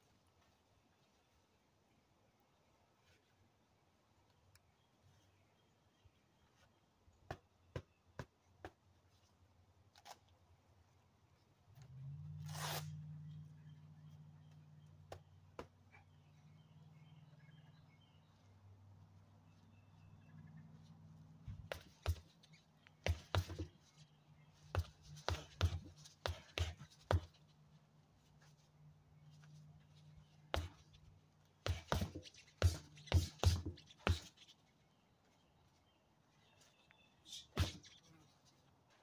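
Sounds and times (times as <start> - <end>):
boxing gloves punching tires: 21.6 - 23.8, 24.6 - 27.4, 31.6 - 34.4, 37.4 - 37.9.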